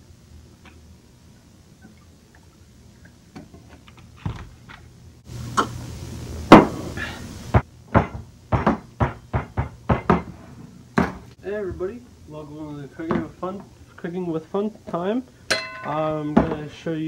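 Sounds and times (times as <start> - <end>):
hiss: 5.3 - 7.6
objects knocking on kitchen counter: 7.6 - 10.3, 11.0 - 11.2.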